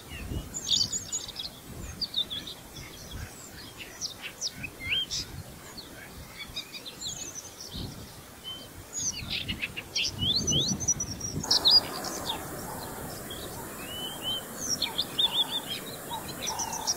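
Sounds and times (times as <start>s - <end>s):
background hiss: 0.0s - 16.9s
birds chirping and calling: 0.0s - 16.9s.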